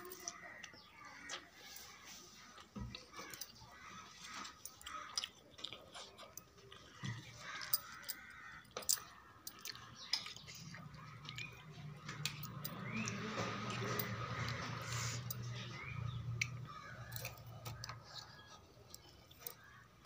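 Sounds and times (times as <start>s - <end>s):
noodles squishing: 0.0s - 13.3s.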